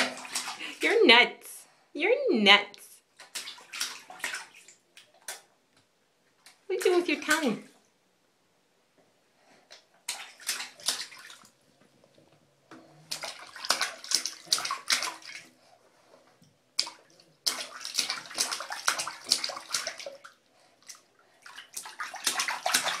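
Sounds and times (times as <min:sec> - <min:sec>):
baby splashing bathwater: 0:00.0 - 0:01.1, 0:03.2 - 0:05.5, 0:06.5 - 0:07.7, 0:10.0 - 0:11.6, 0:12.9 - 0:15.6, 0:16.7 - 0:23.0.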